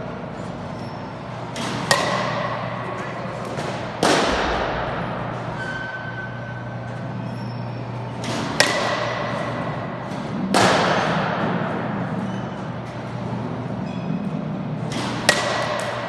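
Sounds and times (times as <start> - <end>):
steady low hum: 0.0 - 16.0
bat hitting ball: 1.5 - 5.4, 8.2 - 11.6, 14.9 - 16.0.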